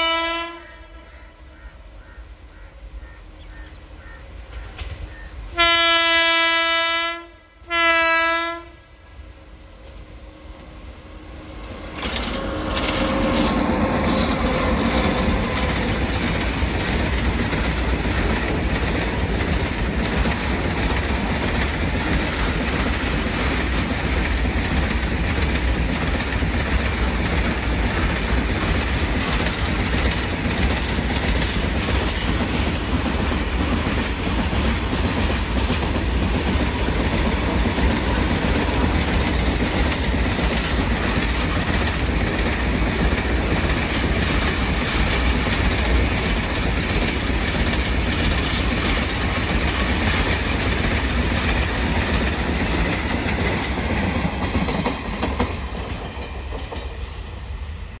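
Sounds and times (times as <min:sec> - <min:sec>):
freight train rumble: 0:00.0 - 0:58.0
steel wheels clattering over rail joints: 0:11.6 - 0:57.1.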